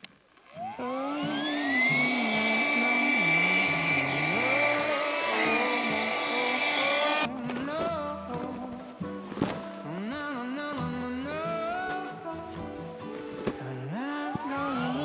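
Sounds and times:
electric air pump whine: 0.5 - 7.3, 14.4 - 15.0.

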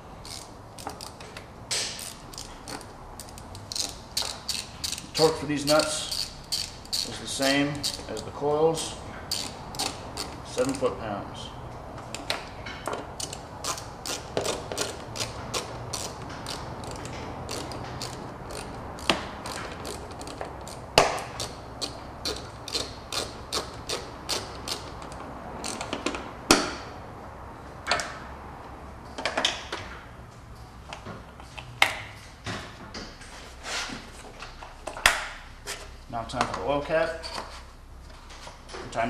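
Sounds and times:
ratchet wrench clicking: 0.2 - 8.3, 9.3 - 10.8, 13.2 - 26.2.

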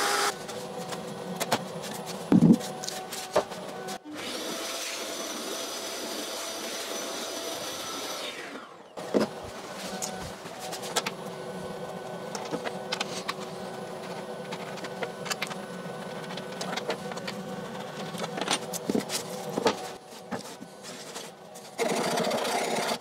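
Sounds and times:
machine hum: 0.0 - 4.3.

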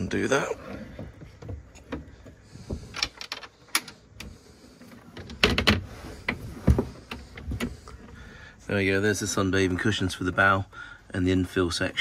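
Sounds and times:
hinges and catch rattling: 0.0 - 8.2
plastic cabin doors clicking open: 5.0 - 7.9.

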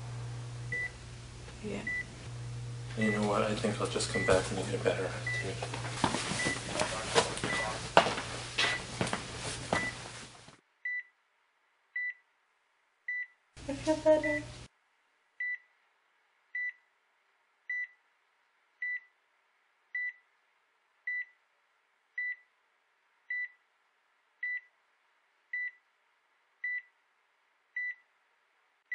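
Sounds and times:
heart monitor beeping: 0.7 - 1.0, 1.8 - 2.1, 4.1 - 4.6, 5.2 - 5.6, 6.3 - 7.8, 8.6 - 9.0, 9.8 - 10.0, 10.8 - 11.1, 16.6 - 16.8, 18.8 - 19.1, 20.0 - 20.2, 21.1 - 21.4, 22.2 - 22.5, 23.3 - 23.6, 24.4 - 24.7, 25.6 - 25.8.

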